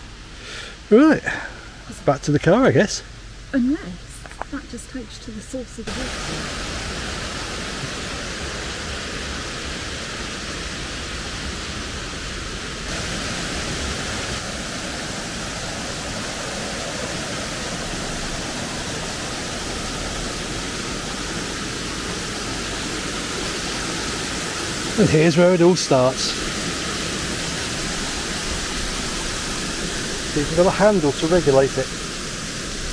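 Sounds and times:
water rushing over waterfall: 0:05.4 - 0:32.9.

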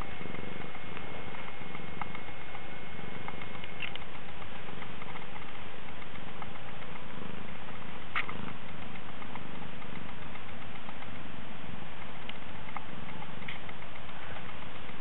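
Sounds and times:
cat purring: 0:00.0 - 0:15.0
faint clicks: 0:00.0 - 0:15.0.

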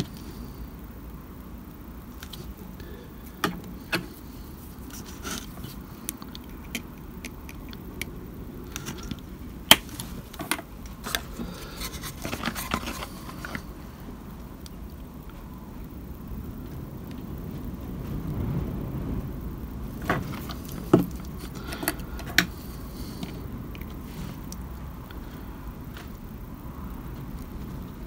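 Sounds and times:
plastic model being handled: 0:03.3 - 0:08.1, 0:08.7 - 0:13.8.

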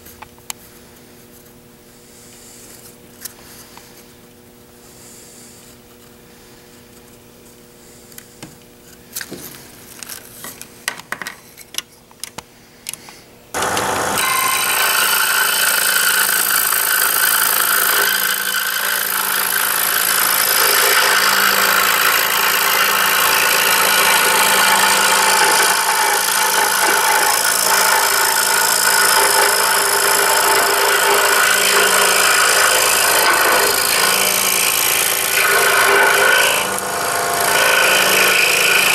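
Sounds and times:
scroll saw cutting wood: 0:13.6 - 0:38.9.

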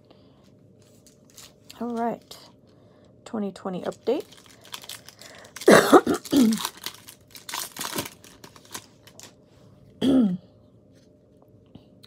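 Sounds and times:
cards rustling: 0:00.8 - 0:02.4, 0:06.5 - 0:09.4
wrapper tearing and crinkling: 0:01.0 - 0:02.3, 0:03.8 - 0:09.4.

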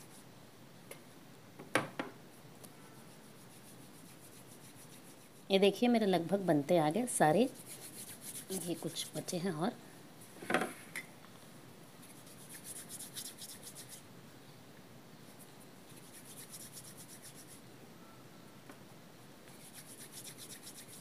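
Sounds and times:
hands rubbing dough: 0:03.0 - 0:05.7, 0:06.9 - 0:09.6, 0:12.0 - 0:14.0, 0:15.3 - 0:17.6, 0:19.5 - 0:21.0.

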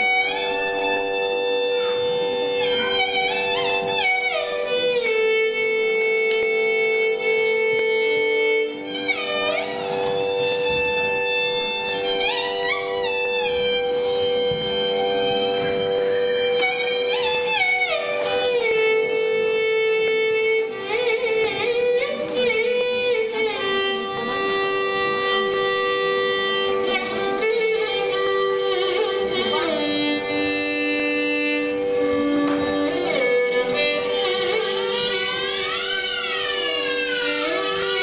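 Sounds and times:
classical melodic instruments: 0:00.0 - 0:38.0.

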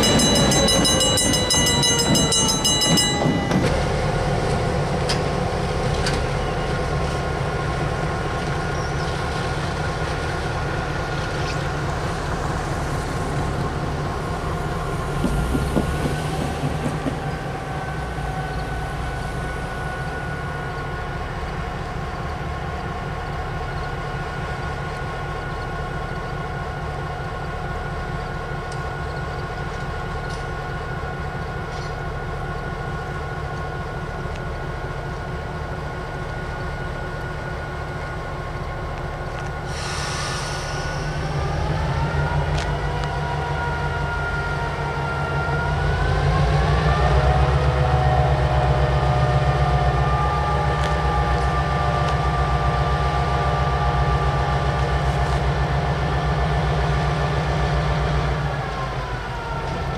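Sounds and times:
diesel locomotive engine: 0:00.0 - 0:59.9
air hiss: 0:39.6 - 0:41.2.

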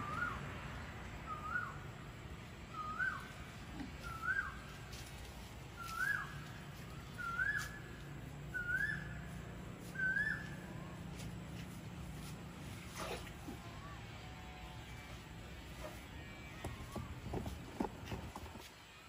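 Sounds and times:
bird whistled call: 0:00.0 - 0:00.4, 0:01.3 - 0:01.8, 0:02.7 - 0:03.3, 0:04.0 - 0:04.6, 0:05.8 - 0:07.9, 0:08.5 - 0:09.2, 0:09.9 - 0:10.7.

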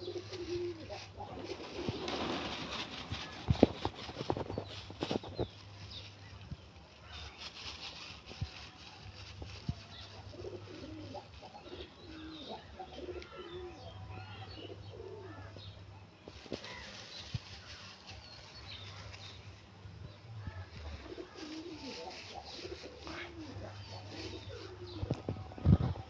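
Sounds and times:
pigeons cooing: 0:00.0 - 0:05.4, 0:10.0 - 0:15.6, 0:20.4 - 0:26.0.

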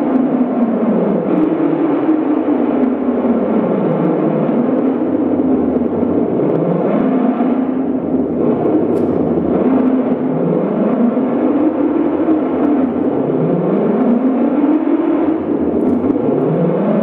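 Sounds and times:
rumbling noise music drone: 0:00.0 - 0:17.0.

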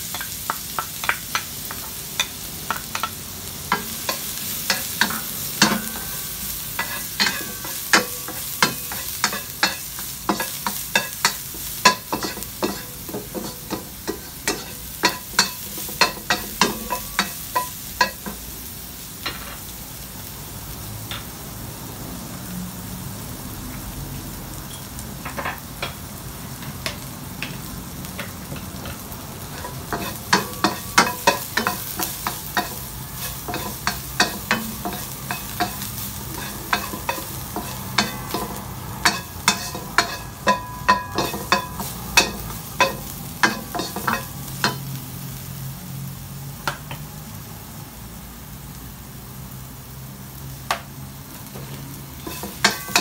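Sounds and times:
garlic sizzling in a wok: 0:00.0 - 0:53.0
wooden spatula scraping a wok: 0:28.2 - 0:44.8, 0:51.5 - 0:53.0.

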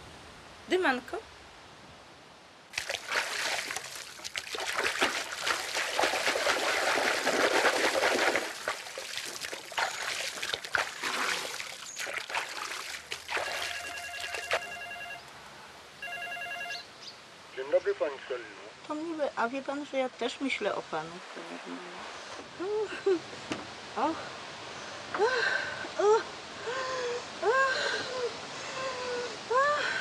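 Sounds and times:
water sloshing and splashing: 0:02.7 - 0:14.9
electronic telephone ring: 0:13.6 - 0:15.3, 0:16.0 - 0:16.9.

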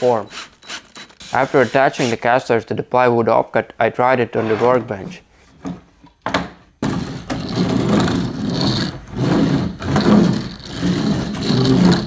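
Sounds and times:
caster wheels rolling on wood: 0:06.8 - 0:12.0.

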